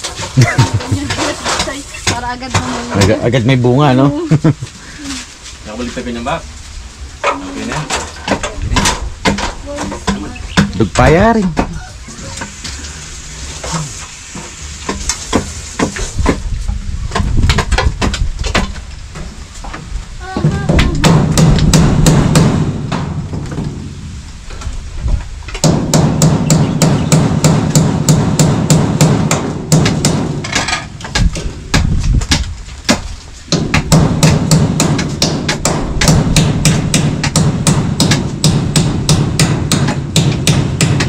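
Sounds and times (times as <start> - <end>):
hammer driving nails into bamboo: 25.5 - 41.0.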